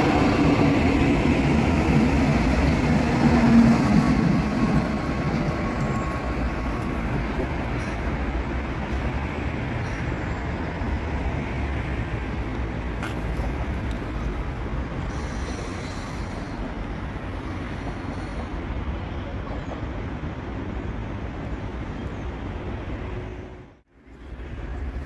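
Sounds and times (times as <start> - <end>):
light-rail train running: 0.0 - 25.0
road traffic rumble: 0.0 - 25.0.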